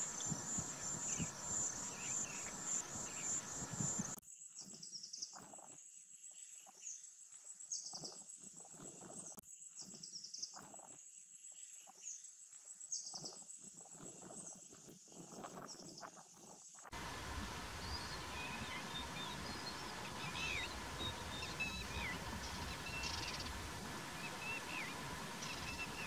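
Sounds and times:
high chirping pulses: 0:00.0 - 0:04.2, 0:17.0 - 0:26.0
insects trilling: 0:00.0 - 0:04.2, 0:16.4 - 0:26.0
low rumble: 0:17.0 - 0:26.0.

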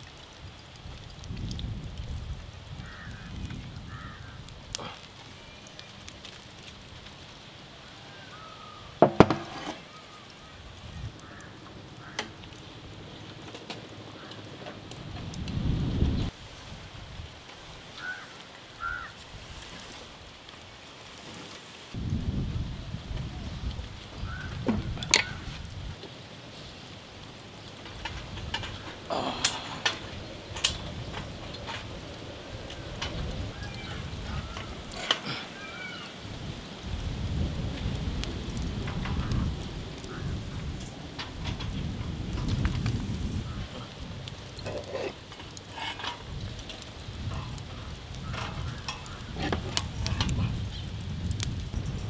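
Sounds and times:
wind rumble on microphone: 0:00.0 - 0:05.0, 0:10.5 - 0:17.9, 0:22.0 - 0:26.8, 0:27.6 - 0:35.5, 0:36.2 - 0:52.0.

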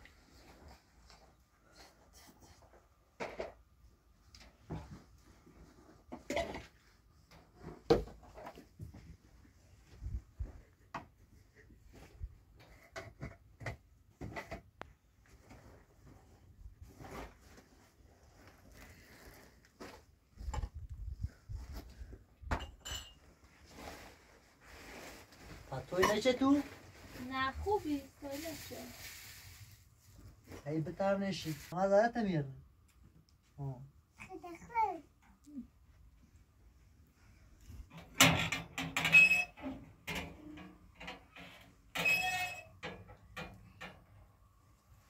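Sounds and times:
metal clanks and scrapes: 0:37.9 - 0:44.0.

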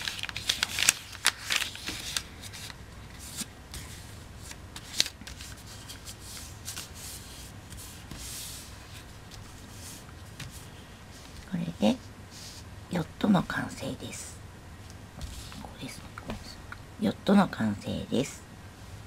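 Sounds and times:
paper crinkling: 0:00.0 - 0:10.6
hands rustling paper: 0:00.0 - 0:11.6.

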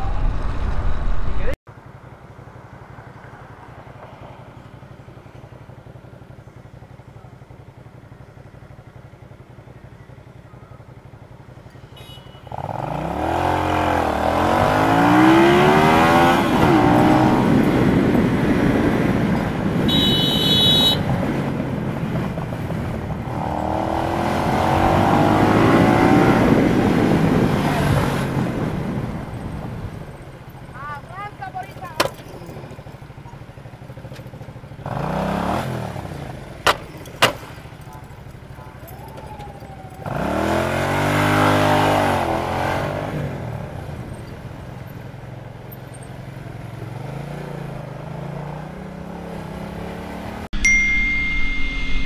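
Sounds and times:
motorcycle engine revving: 0:06.6 - 0:50.5
high-pitched beep: 0:50.6 - 0:52.0.

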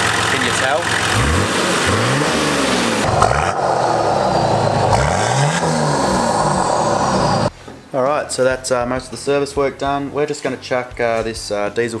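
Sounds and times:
diesel engine revving: 0:00.0 - 0:07.5.

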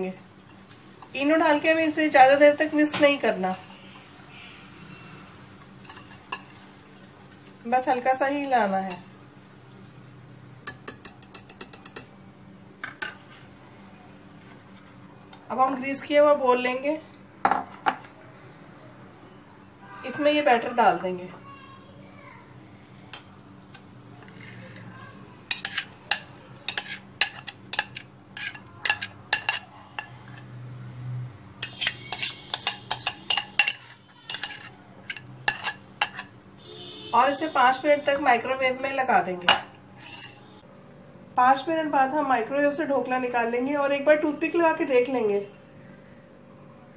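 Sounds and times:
whisk clinking against glass bowl: 0:10.6 - 0:12.1, 0:31.6 - 0:36.3.

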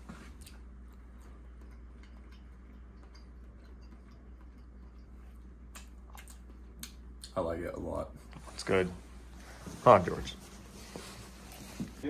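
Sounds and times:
low electrical hum: 0:00.0 - 0:12.0
person chewing wet clicks: 0:00.3 - 0:07.4.

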